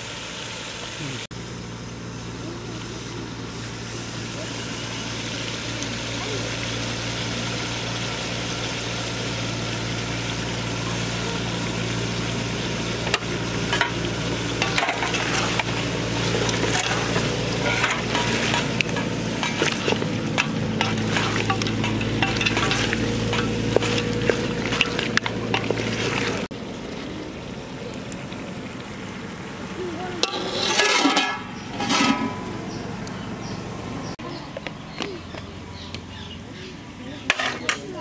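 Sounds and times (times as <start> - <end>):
chicken sizzling in a metal pot: 0.0 - 26.5, 29.3 - 33.6, 37.2 - 38.0
scraping and clattering: 14.6 - 26.5, 30.2 - 32.6.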